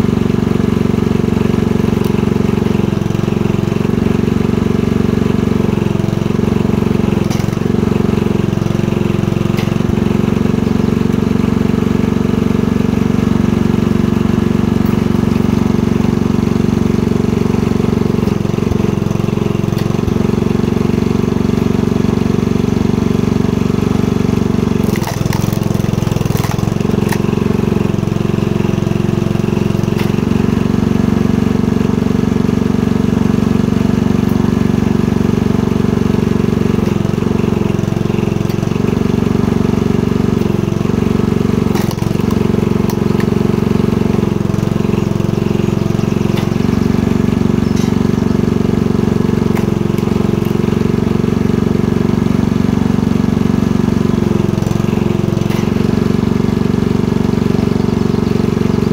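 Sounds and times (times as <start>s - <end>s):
log splitter engine running: 0.0s - 58.9s
sharp knocks and cracks: 7.2s - 7.8s, 9.5s - 10.0s, 24.8s - 27.6s, 29.8s - 30.4s, 41.7s - 43.4s, 46.2s - 46.8s, 49.5s - 50.7s.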